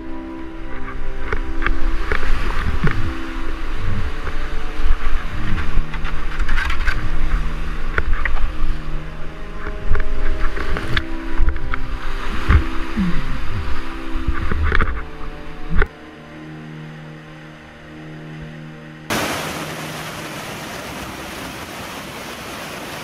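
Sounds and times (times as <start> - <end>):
low rumble on microphone: 0.0 - 15.9
rapids rushing and splashing: 0.0 - 15.9, 19.1 - 23.0
water hitting camera: 19.1 - 23.0.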